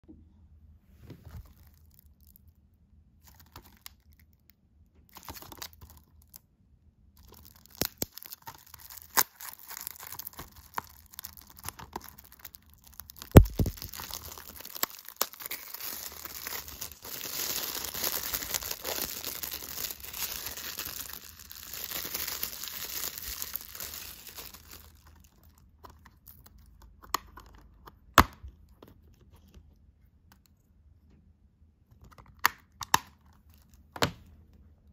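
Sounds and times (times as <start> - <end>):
plastic wrap crinkling: 1.3 - 2.4, 5.1 - 6.4, 7.2 - 26.7.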